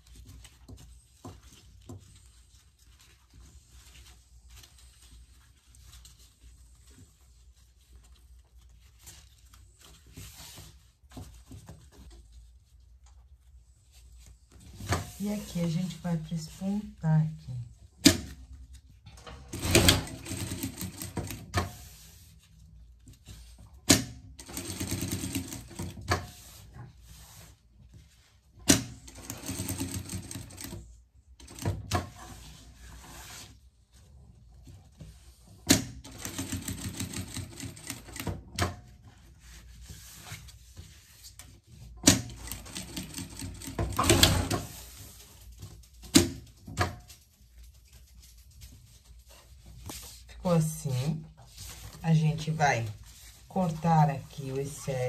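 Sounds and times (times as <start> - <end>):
sewing machine stitching: 19.4 - 21.5, 24.4 - 26.0, 28.7 - 30.8, 36.0 - 38.4, 42.1 - 44.8.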